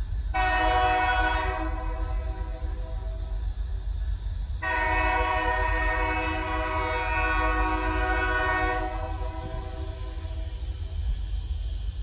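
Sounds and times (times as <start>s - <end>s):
locomotive air horn chord: 0.4s - 3.2s, 4.6s - 10.5s.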